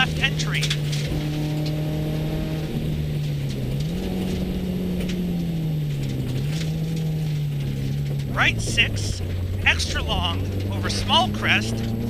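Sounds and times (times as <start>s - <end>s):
rally car engine from inside: 0.0s - 12.0s
tyres on gravel: 3.1s - 12.0s.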